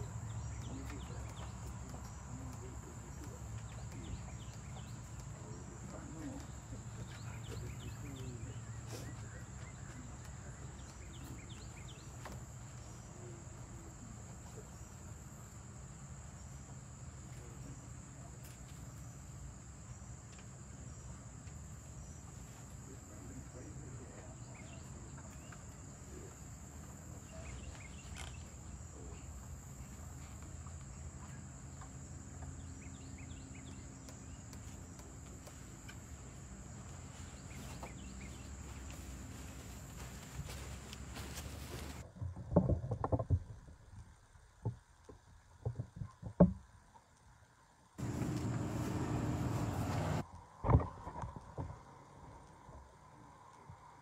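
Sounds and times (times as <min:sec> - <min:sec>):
insects droning: 0:00.0 - 0:54.0
low outdoor rumble: 0:48.0 - 0:54.0.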